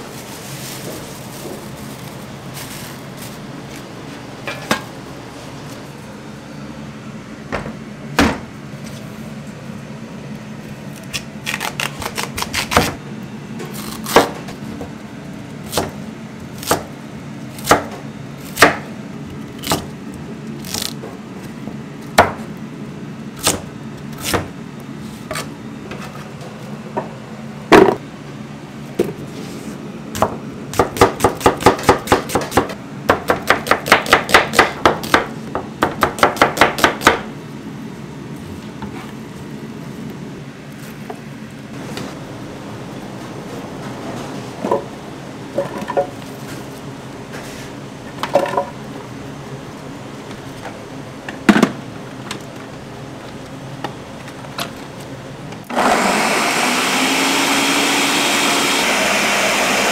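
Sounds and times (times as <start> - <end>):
knife chopping onions on board: 15.7 - 16.0, 16.6 - 16.9, 17.6 - 18.9, 30.1 - 37.3.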